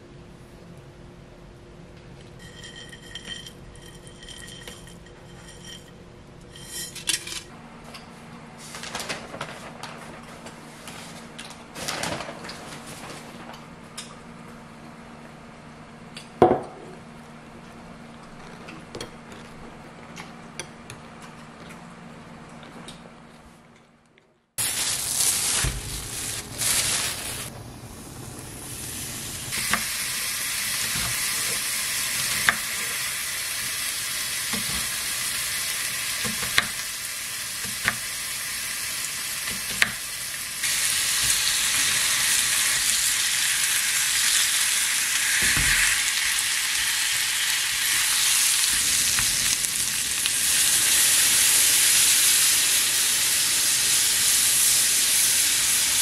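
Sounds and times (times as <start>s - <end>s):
food sizzling in a pan: 24.6s - 27.5s, 28.5s - 56.0s.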